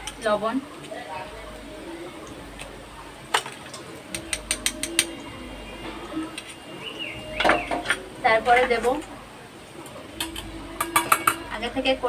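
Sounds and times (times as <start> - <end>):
metal spoon clinking on steel bowls: 4.1 - 5.2, 10.2 - 11.6.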